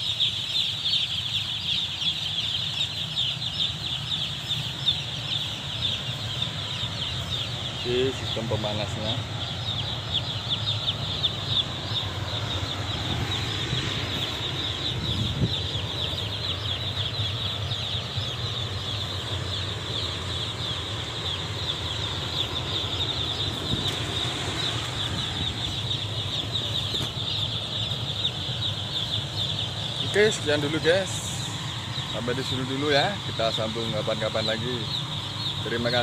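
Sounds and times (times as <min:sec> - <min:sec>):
chicks peeping: 0:00.0 - 0:36.0
steady low hum: 0:00.0 - 0:36.0.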